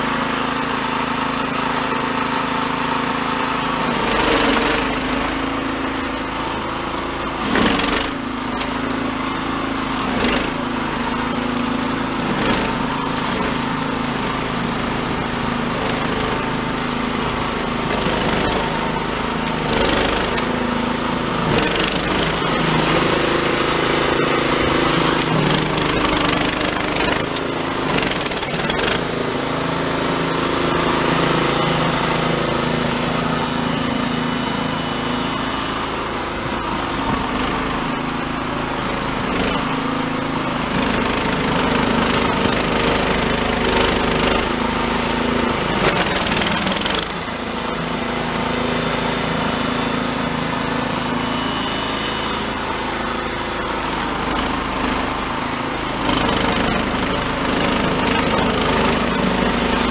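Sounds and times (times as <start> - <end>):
snowblower engine running: 0.0 - 59.9.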